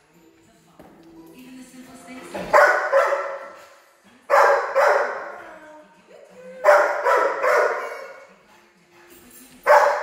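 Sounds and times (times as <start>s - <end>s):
dog barking: 2.5s - 3.7s, 4.3s - 5.4s, 6.6s - 8.2s, 9.6s - 10.0s.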